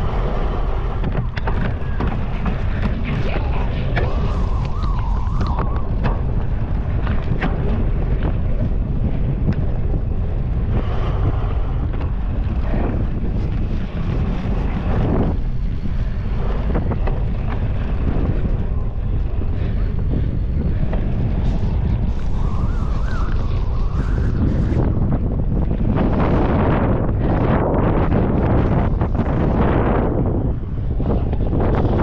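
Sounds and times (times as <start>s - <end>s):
wind rushing over microphone: 0.0s - 32.0s
bike knocks and rattles: 5.9s - 10.4s.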